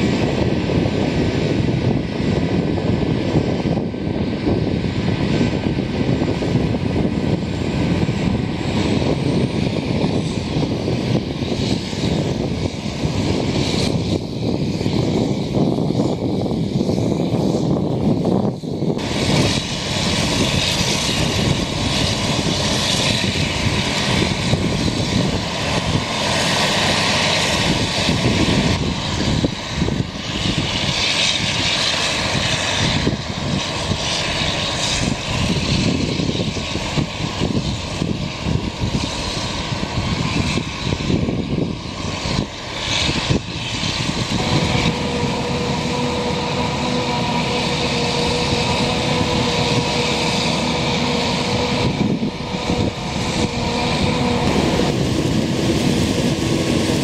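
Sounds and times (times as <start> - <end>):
forage harvester engine drone: 0.0 - 57.0
steady whine: 0.0 - 57.0.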